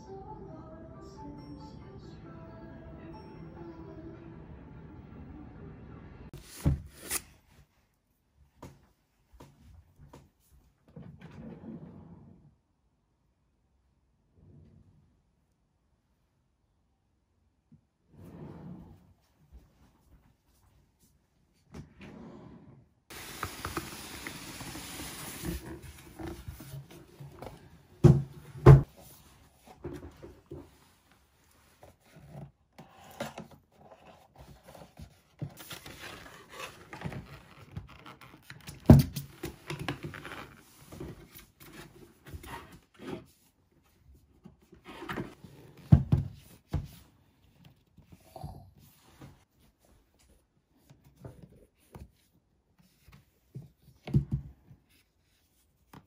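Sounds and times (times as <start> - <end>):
cardboard and paper rustling: 23.1 - 27.9, 28.8 - 43.4.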